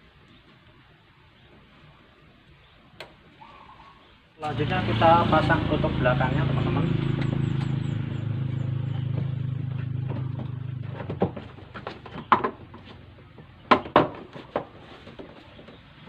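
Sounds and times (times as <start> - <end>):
vehicle engine hum: 4.4 - 13.8.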